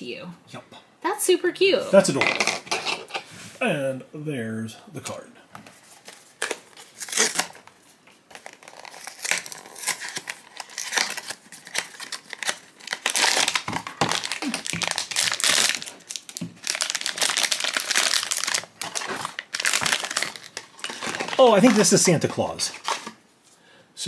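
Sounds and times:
foil bag tearing and crinkling: 0:06.3 - 0:07.7, 0:08.3 - 0:23.1.

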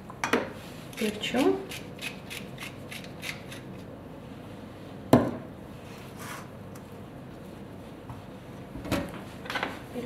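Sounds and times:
room hum: 0:00.0 - 0:10.0.

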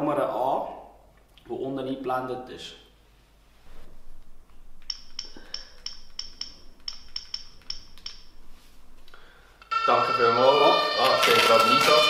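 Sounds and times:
loud steady tone: 0:09.6 - 0:12.0.

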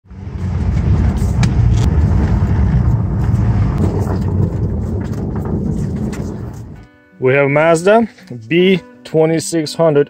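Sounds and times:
pickup engine running inside cab: 0:00.0 - 0:06.8.

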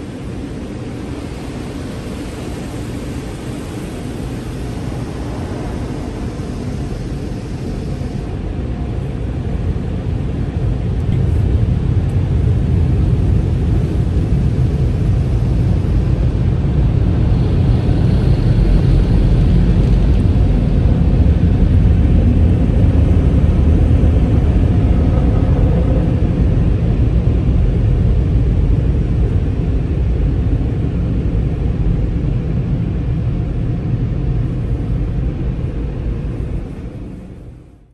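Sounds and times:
car wash machinery rumbling: 0:00.0 - 0:37.7.

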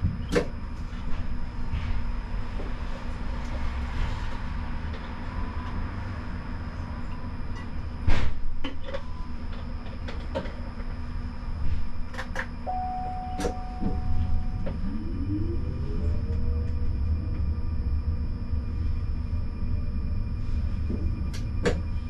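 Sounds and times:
tram rumble: 0:00.0 - 0:22.0
steady beep: 0:12.6 - 0:15.8.

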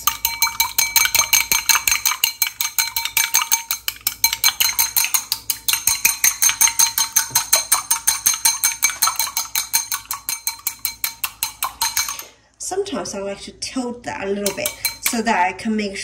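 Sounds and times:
chopsticks knocking glass bowl: 0:00.0 - 0:12.2.

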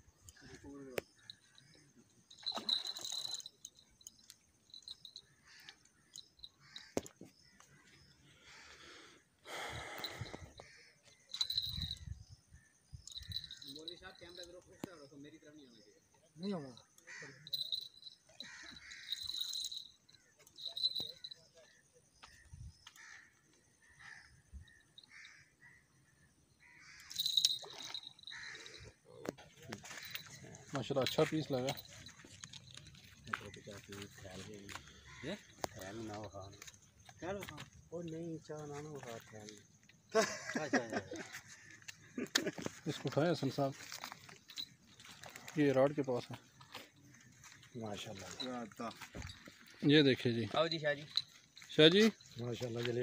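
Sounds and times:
fish splashing in shallow water: 0:02.3 - 0:04.2
crows cawing: 0:04.7 - 0:12.0, 0:16.7 - 0:21.4, 0:22.2 - 0:31.2, 0:34.4 - 0:36.6.

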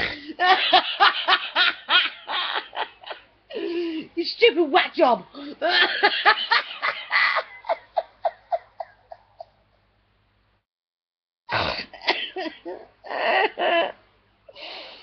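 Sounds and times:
woman laughing: 0:00.0 - 0:03.9, 0:05.4 - 0:09.7, 0:12.0 - 0:14.0.

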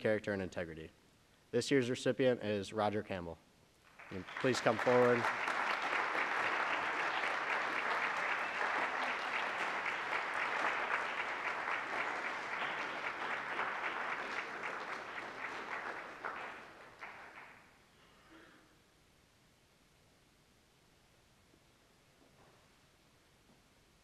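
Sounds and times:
audience applauding: 0:03.9 - 0:17.7.

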